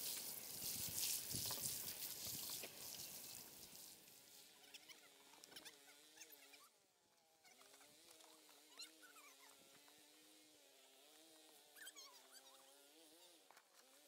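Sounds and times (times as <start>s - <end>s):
water pattering onto soil: 0.0s - 4.2s.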